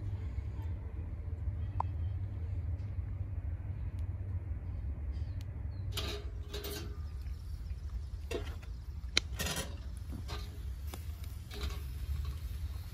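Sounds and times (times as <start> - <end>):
low steady rumble: 0.0 - 12.9
metal skewers clinking on grill grate: 5.9 - 7.2, 9.2 - 12.9.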